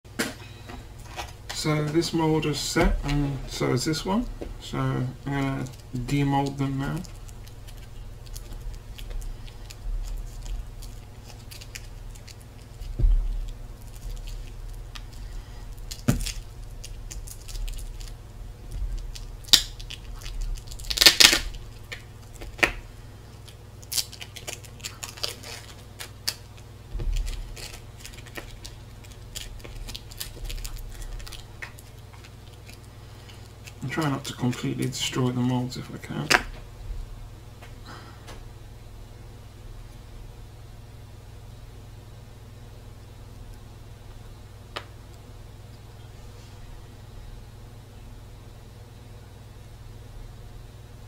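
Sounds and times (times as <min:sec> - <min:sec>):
card tearing: 0:19.5 - 0:21.6.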